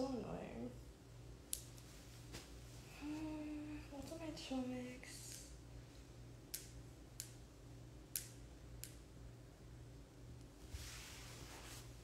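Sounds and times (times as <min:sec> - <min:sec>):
faint low hum: 0:00.0 - 0:12.0
light sharp clicks: 0:05.2 - 0:05.6, 0:06.5 - 0:07.4.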